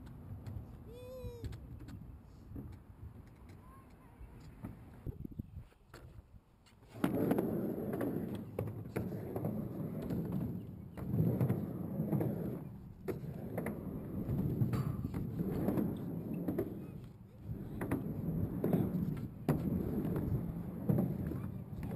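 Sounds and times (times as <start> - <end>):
skateboard wheels rumbling on ramp: 6.9 - 21.9.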